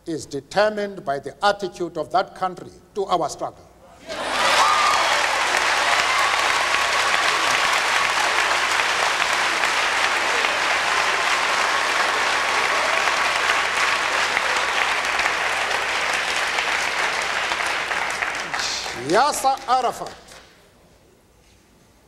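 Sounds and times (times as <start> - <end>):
audience applauding: 4.1 - 20.5.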